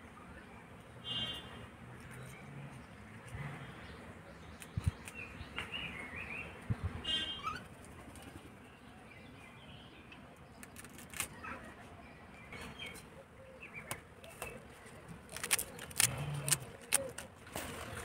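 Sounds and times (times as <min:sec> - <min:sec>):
small birds chirping: 0:02.0 - 0:17.3
knife cutting stems: 0:15.3 - 0:17.3.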